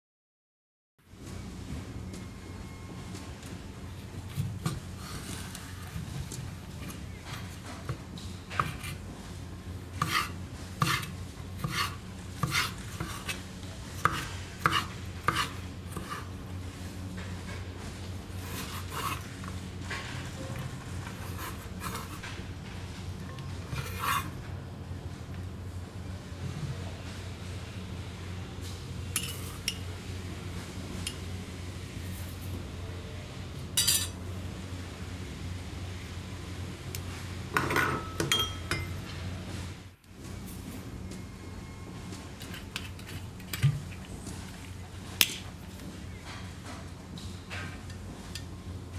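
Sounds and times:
knife chopping on wooden board: 10.0s - 13.4s, 14.0s - 16.2s
metal spoon clinking on glass bowl: 33.8s - 34.1s, 37.7s - 39.0s.

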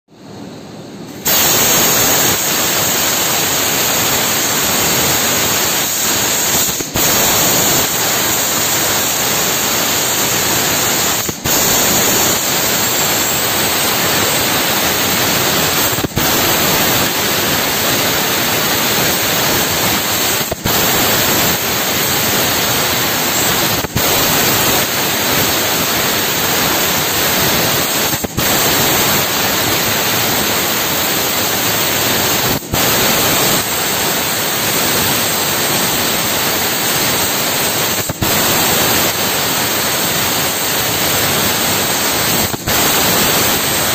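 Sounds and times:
laser cutter gas jet hissing: 0.6s - 43.9s.

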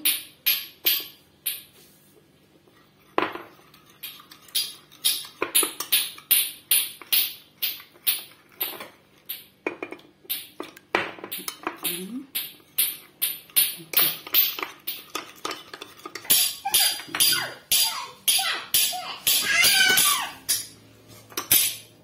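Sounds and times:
spoon clinking against ceramic bowl: 3.2s - 20.7s.

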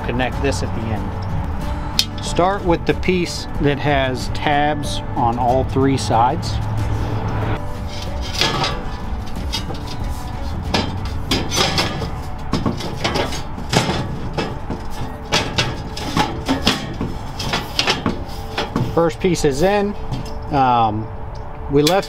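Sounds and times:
metal panels clanking and scraping: 1.9s - 20.8s
sharp metal knocks: 7.9s - 20.6s.

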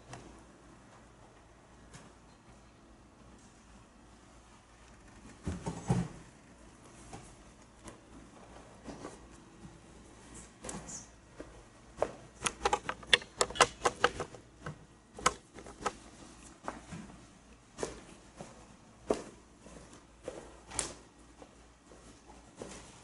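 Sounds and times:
sharp clicks and knocks: 12.0s - 16.0s.

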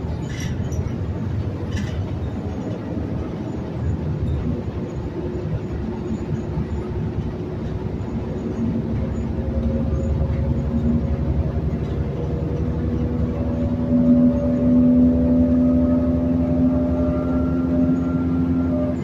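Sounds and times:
bus engine rumble: 0.0s - 19.0s
transmission whine rising: 12.4s - 19.0s.

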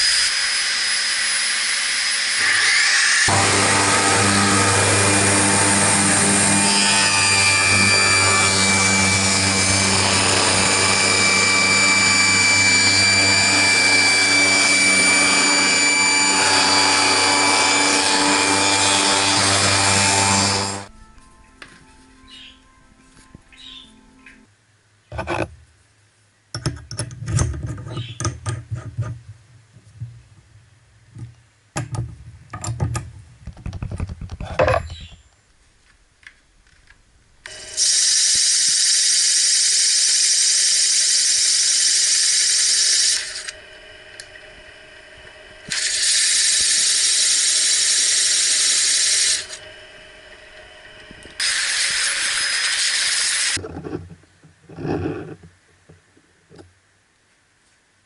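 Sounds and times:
drill press whirring: 0.0s - 20.9s, 37.4s - 53.6s.

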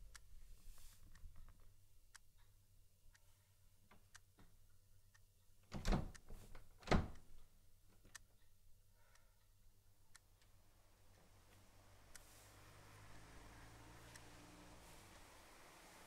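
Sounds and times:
faint ticking: 0.0s - 16.0s.

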